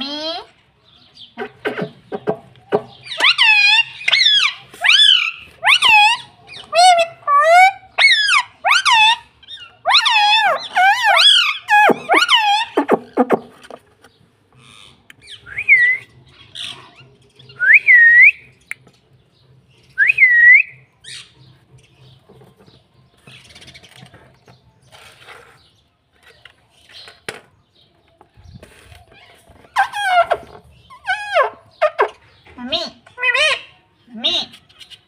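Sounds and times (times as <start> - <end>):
faint scratching and rustling: 21.4 - 27.3, 28.2 - 30.9.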